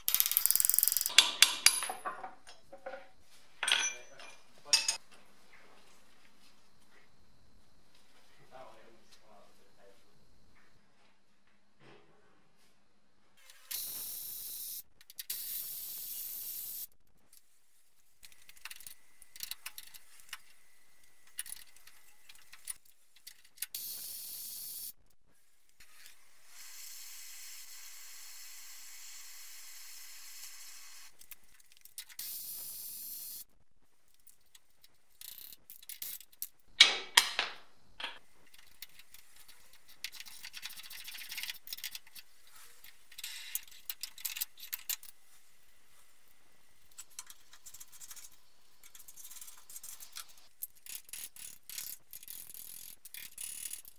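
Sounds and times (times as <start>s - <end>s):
steady spray hiss: 25.8s - 31.2s, 32.2s - 33.4s
air tool hissing bursts: 32.2s - 33.4s.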